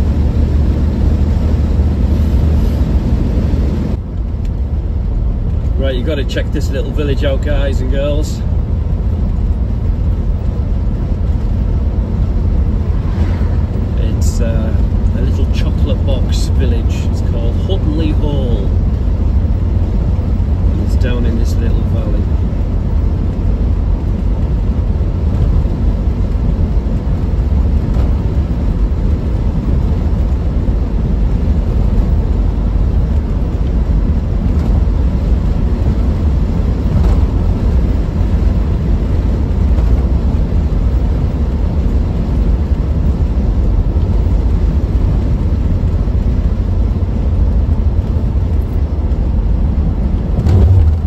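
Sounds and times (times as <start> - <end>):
car engine and tyres rumbling: 0.0 - 51.0.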